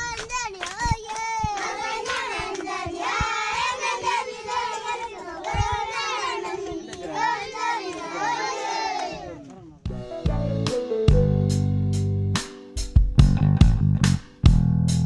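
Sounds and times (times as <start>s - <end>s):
children singing in unison: 0.6s - 9.4s.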